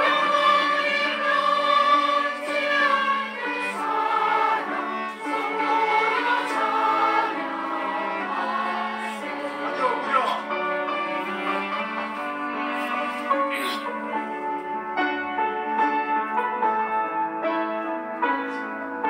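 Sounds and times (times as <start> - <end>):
choir singing: 0.0 - 14.6.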